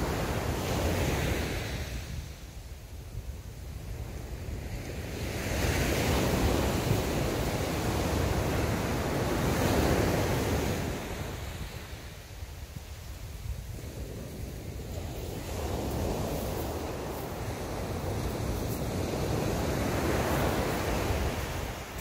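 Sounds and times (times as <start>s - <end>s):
wind rumbling on microphone: 0.0s - 22.0s
sea waves breaking: 13.5s - 22.0s.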